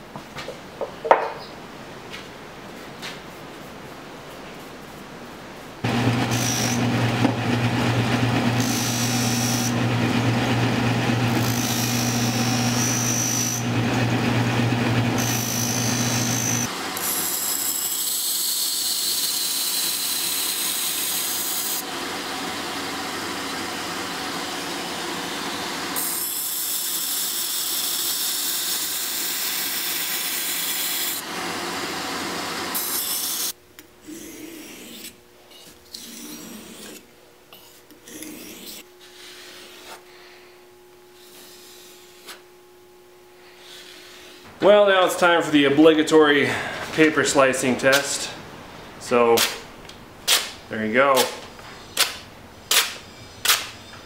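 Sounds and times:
bench buffer motor humming: 0:05.8 - 0:17.9, 0:18.8 - 0:48.3
belt grinder hissing: 0:05.8 - 0:35.2
blade scraping on sharpening stone: 0:34.1 - 0:38.8.

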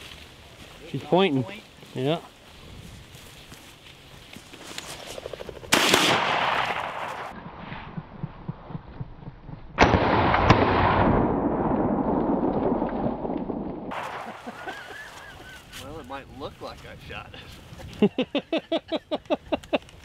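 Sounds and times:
shotgun blasts: 0:05.7 - 0:07.3, 0:09.8 - 0:14.2
sharp crack: 0:05.7 - 0:07.5, 0:09.8 - 0:14.6.

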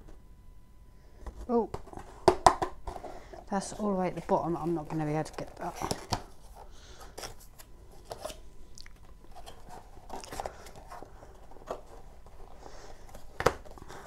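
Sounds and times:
packaging rustling and crinkling: 0:01.3 - 0:14.0.

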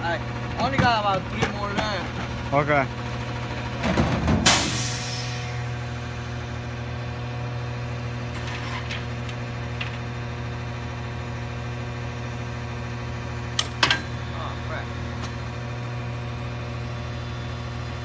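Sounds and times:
truck engine idling: 0:00.0 - 0:18.0
junk clattering into metal bin: 0:03.8 - 0:04.9, 0:08.3 - 0:09.2.

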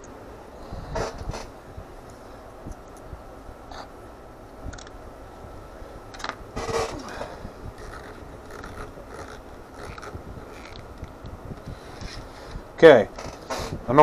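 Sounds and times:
handling scrape and rustle: 0:06.6 - 0:10.8.

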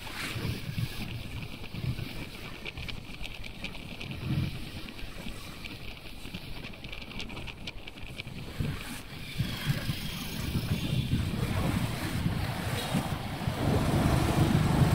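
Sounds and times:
wind rumbling on microphone: 0:00.0 - 0:14.9
motorcycle engine: 0:11.7 - 0:14.9
street traffic: 0:11.7 - 0:14.9.

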